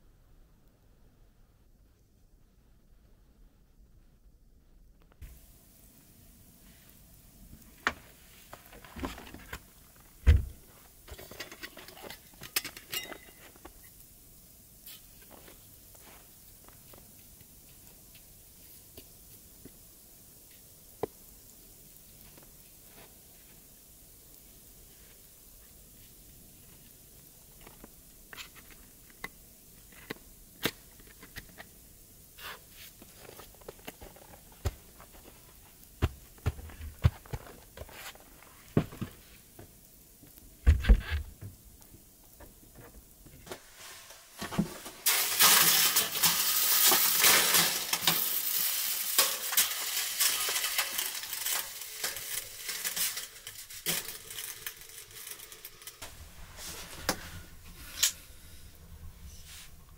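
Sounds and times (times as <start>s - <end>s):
steam hissing on hot stones: 5.2s - 59.9s
knocks of things being handled: 36.0s - 37.9s.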